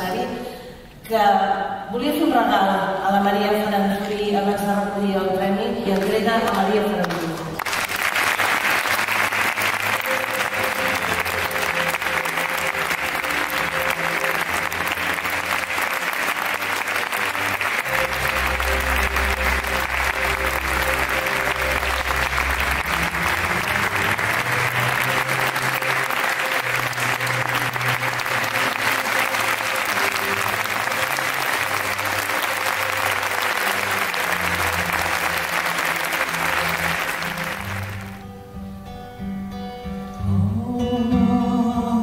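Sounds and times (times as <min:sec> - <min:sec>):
audience applauding: 0:06.0 - 0:38.3.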